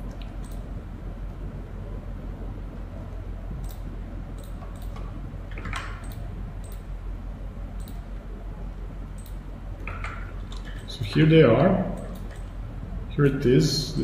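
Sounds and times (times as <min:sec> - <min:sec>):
low electrical hum: 0:00.0 - 0:14.0
computer mouse clicks: 0:00.2 - 0:00.6, 0:03.6 - 0:03.8, 0:04.4 - 0:06.9, 0:07.8 - 0:08.0, 0:09.2 - 0:10.9, 0:11.9 - 0:12.5.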